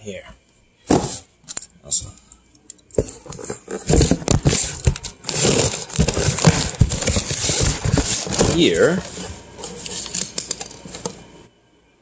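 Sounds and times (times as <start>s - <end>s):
packaging crinkling and tearing: 4.0s - 11.1s.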